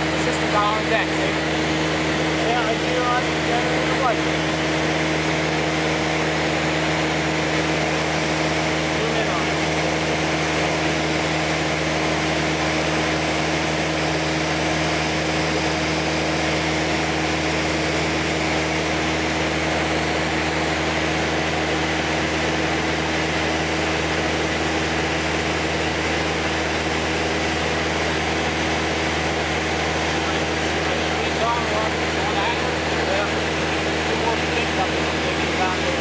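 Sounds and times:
airplane engine droning: 0:00.0 - 0:36.0.

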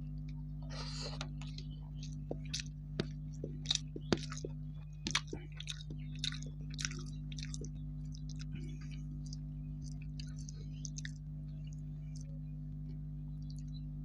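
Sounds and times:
steady low hum: 0:00.0 - 0:14.0
person chewing with wet smacks: 0:00.2 - 0:13.9.

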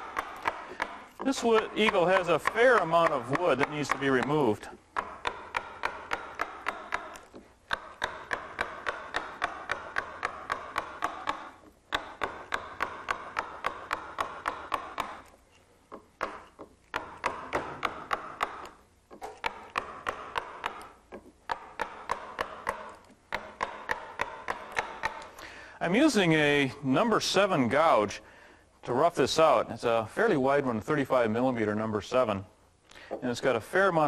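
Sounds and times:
mallet tapping gouge into wood: 0:00.0 - 0:25.5.

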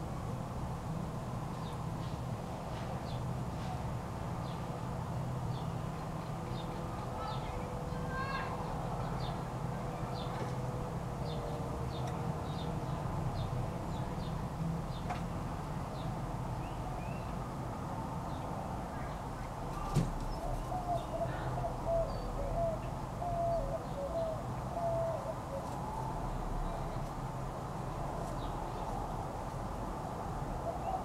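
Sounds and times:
small birds chirping: 0:11.2 - 0:15.1, 0:15.9 - 0:17.4
dove cooing: 0:20.4 - 0:26.2.

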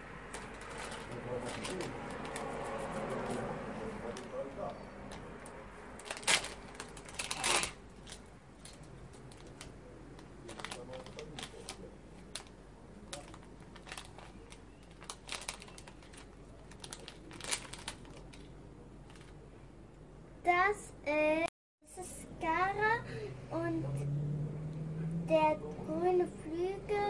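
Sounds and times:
foil packet tearing and crinkling: 0:00.3 - 0:03.4, 0:06.0 - 0:08.2, 0:10.4 - 0:18.5.

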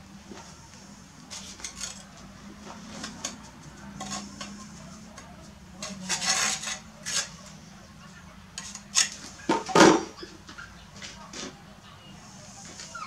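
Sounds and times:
trowel scraping on brick: 0:01.3 - 0:02.2, 0:04.0 - 0:04.6, 0:05.8 - 0:07.6, 0:08.6 - 0:09.3.

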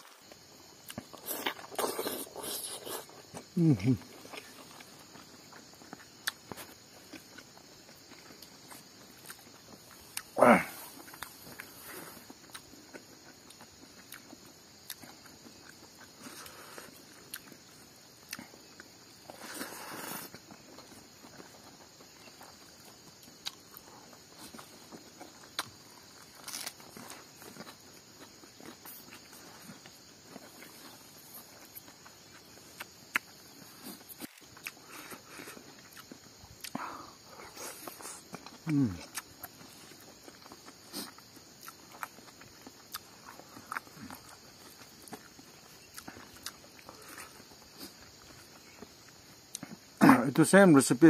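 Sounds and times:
person chewing food: 0:00.0 - 0:50.0
steady high hiss: 0:46.6 - 0:51.0.

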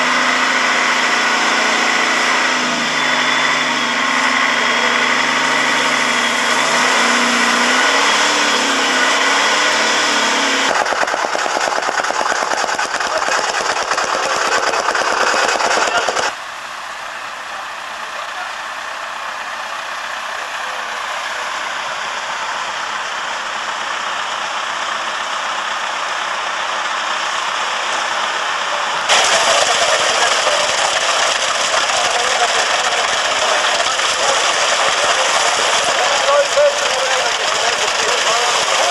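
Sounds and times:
concrete mixer truck pouring: 0:00.0 - 0:38.9
diesel engine running: 0:00.0 - 0:38.9
fast even clatter: 0:10.7 - 0:16.3, 0:29.1 - 0:38.9.

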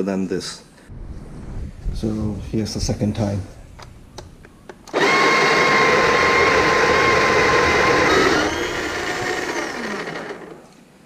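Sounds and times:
grinder motor whining: 0:04.9 - 0:10.8.

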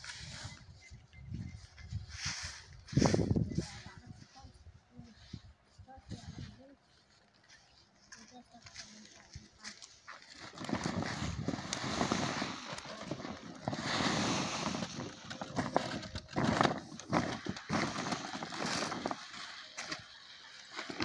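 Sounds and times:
plastic tarpaulin rustling: 0:08.1 - 0:21.0.

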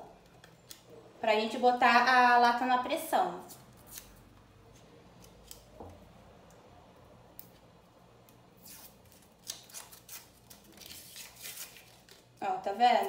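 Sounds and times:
paper label tearing off tin can: 0:03.7 - 0:04.2.

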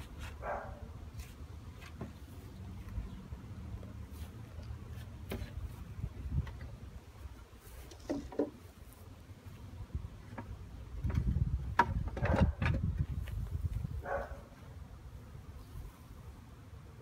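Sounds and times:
honeybees buzzing: 0:00.0 - 0:12.2, 0:13.1 - 0:17.0
knocks on wooden hive boxes: 0:10.3 - 0:13.1.

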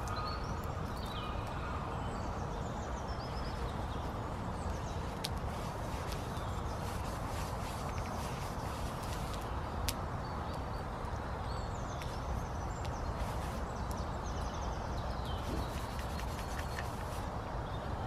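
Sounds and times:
rushing background noise: 0:00.6 - 0:18.0
small bird chirping: 0:11.5 - 0:17.9.

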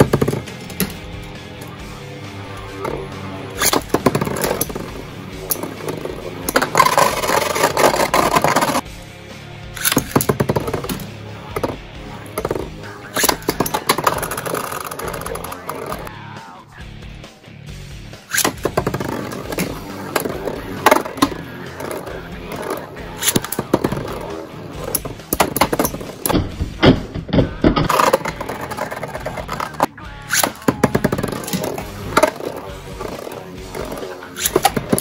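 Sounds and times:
spinning tips scraping plastic: 0:02.8 - 0:08.8, 0:09.8 - 0:16.1, 0:18.3 - 0:26.4, 0:27.8 - 0:35.0
spinning tops clacking: 0:03.5 - 0:08.8, 0:09.8 - 0:16.1, 0:18.3 - 0:26.4, 0:27.8 - 0:35.0.

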